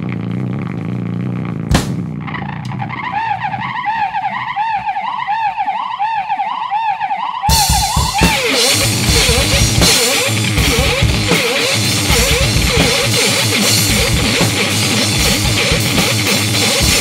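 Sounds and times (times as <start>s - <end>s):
wall of distorted noise: 0.0s - 5.6s, 7.5s - 17.0s
sharp crash: 1.7s - 3.1s
wailing electronic tone: 2.2s - 17.0s.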